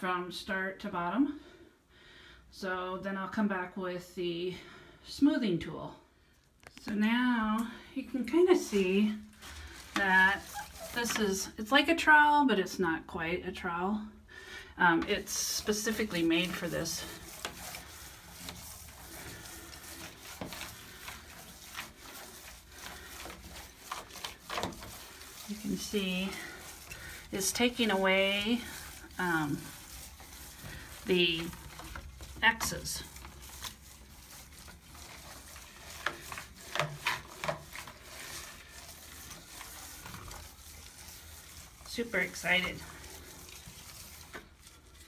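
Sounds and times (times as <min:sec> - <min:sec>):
tool scraping wet paint: 0:08.6 - 0:11.8, 0:14.9 - 0:45.0.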